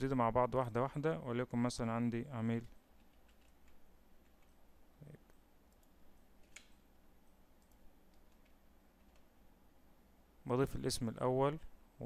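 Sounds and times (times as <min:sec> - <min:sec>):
low steady hum: 0:00.0 - 0:12.0
computer keyboard typing: 0:03.0 - 0:04.6, 0:07.6 - 0:09.3.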